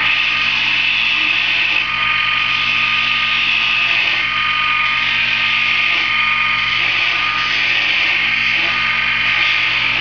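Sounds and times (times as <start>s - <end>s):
wood lathe motor humming: 0.0s - 10.0s.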